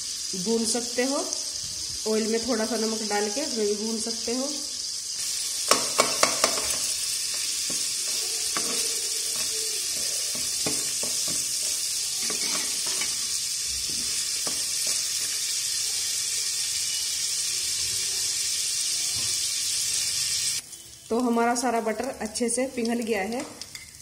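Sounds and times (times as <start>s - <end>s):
butter sizzling in a pot: 0.0s - 24.0s
spatula knocking pot: 5.7s - 13.2s
metal spatula scraping kernels: 5.7s - 15.4s.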